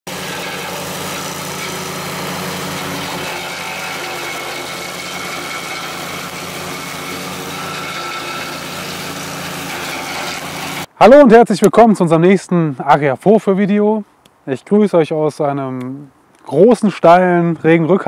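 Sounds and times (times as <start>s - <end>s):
mower engine running: 0.0s - 10.9s.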